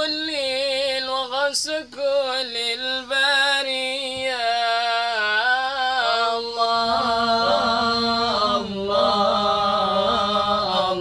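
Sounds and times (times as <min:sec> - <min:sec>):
men singing a cappella: 0:00.0 - 0:11.0.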